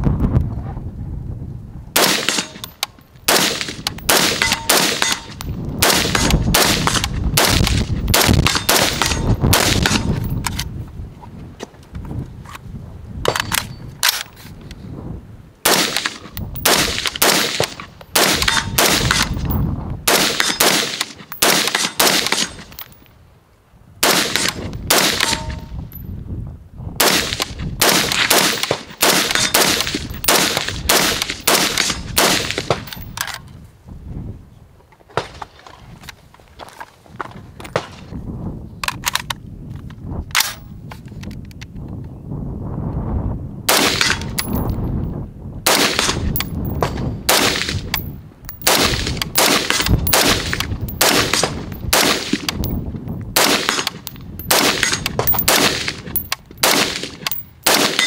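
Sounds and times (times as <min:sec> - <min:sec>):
rifle single shots: 0:02.0 - 0:10.6, 0:15.6 - 0:22.9, 0:24.0 - 0:25.7, 0:27.0 - 0:33.4, 0:43.7 - 0:44.6, 0:45.6 - 0:52.8, 0:53.4 - 0:58.0.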